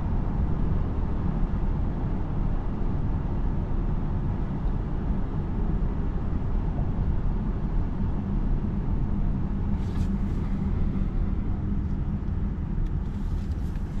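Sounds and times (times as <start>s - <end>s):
tyre and road noise in car: 9.5s - 14.0s.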